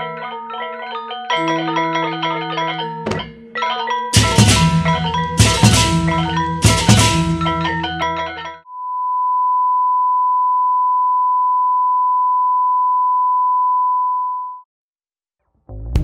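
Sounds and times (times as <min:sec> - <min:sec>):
music with drums and mallets: 0:01.4 - 0:08.6
sine test tone: 0:08.6 - 0:14.7.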